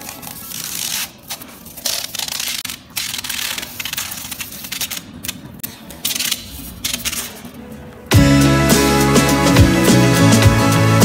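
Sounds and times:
vinyl film crackling and scraping: 0:00.0 - 0:07.8.

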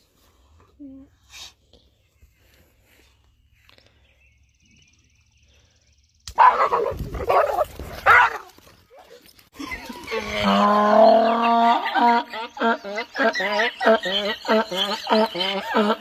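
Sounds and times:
dog barking: 0:06.4 - 0:08.5
drawn-out dog cry: 0:06.4 - 0:16.0.

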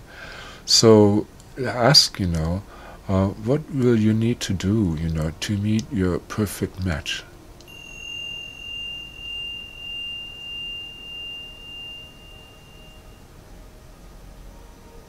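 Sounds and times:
metal chime ringing: 0:07.7 - 0:13.4.

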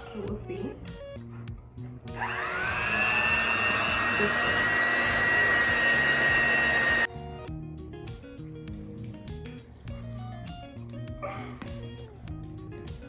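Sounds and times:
electric hand mixer whining: 0:02.1 - 0:07.1.

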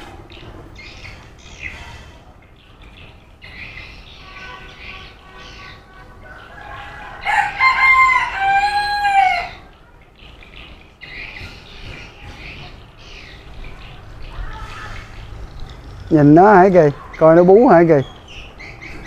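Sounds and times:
faint birds chirping: 0:00.0 - 0:19.0
rooster crowing: 0:06.2 - 0:09.6.

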